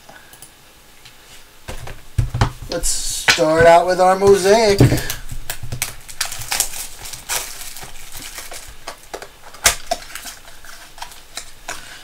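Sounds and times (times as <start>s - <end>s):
plastic wrapper crinkling: 1.7s - 12.0s
packaging being torn open: 5.1s - 11.8s.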